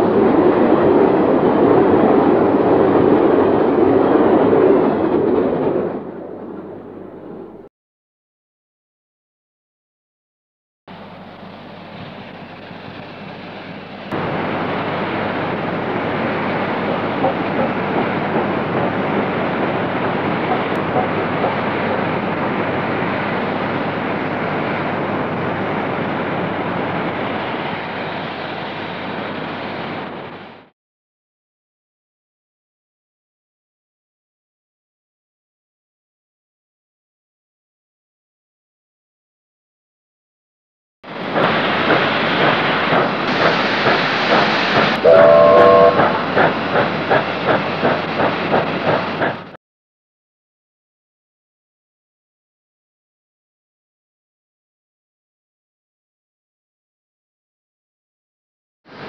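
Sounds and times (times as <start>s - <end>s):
steam train running past: 0.0s - 7.7s, 10.9s - 30.7s, 41.1s - 49.6s
steam whistle blast: 44.9s - 46.3s.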